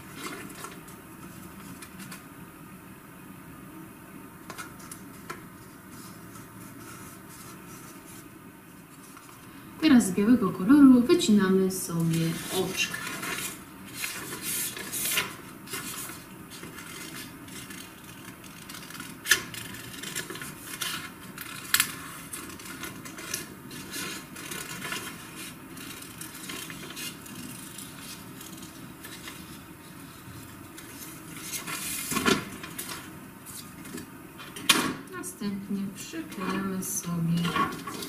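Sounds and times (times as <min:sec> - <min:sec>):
paper rustling: 0:12.0 - 0:34.0.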